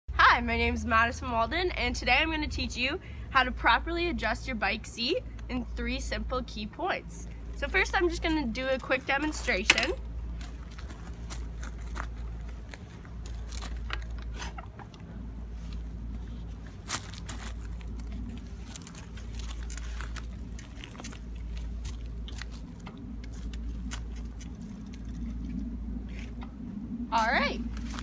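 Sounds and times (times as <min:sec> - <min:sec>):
low steady rumble: 0:00.1 - 0:28.0
bicycle clicks and gravel crunches: 0:08.5 - 0:14.5, 0:16.4 - 0:25.3.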